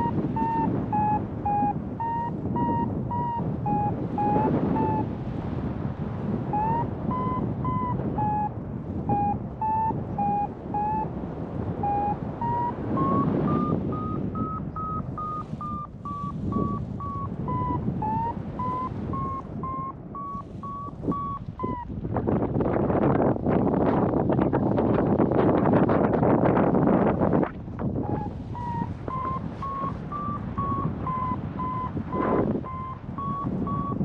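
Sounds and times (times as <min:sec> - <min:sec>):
variometer beeping: 0:00.0 - 0:05.1, 0:06.4 - 0:11.1, 0:11.7 - 0:21.9, 0:28.0 - 0:34.0
wind rushing over microphone: 0:00.0 - 0:34.0.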